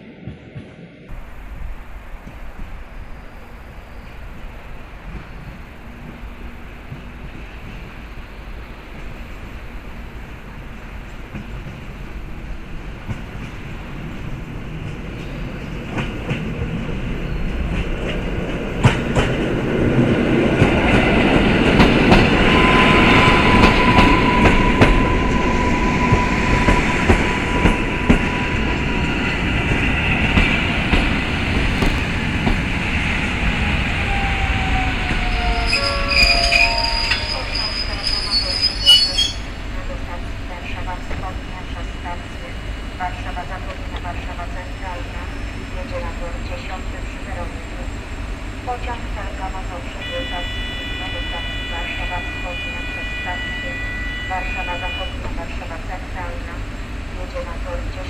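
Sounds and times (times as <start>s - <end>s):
train running noise: 0.0s - 58.0s
high squeal of slowing train: 2.4s - 10.2s, 16.9s - 18.1s, 20.7s - 30.8s, 33.5s - 39.7s, 50.1s - 55.3s.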